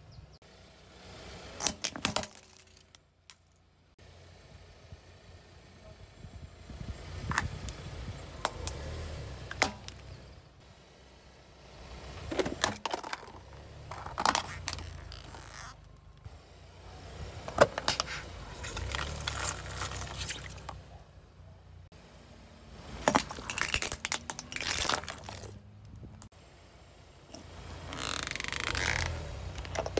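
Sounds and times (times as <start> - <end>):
plastic objects cracking: 1.6 - 3.6, 12.3 - 15.6, 23.0 - 26.0
car tyre rolling over asphalt: 6.3 - 29.9.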